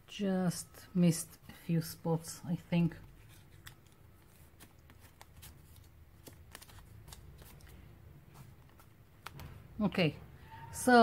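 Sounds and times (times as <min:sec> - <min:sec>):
paper rustling: 0:02.9 - 0:09.5.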